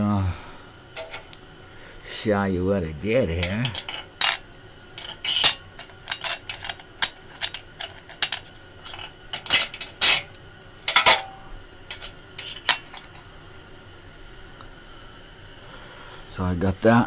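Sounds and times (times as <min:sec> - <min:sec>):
small metal parts clinking: 0:03.4 - 0:04.4, 0:05.0 - 0:13.2.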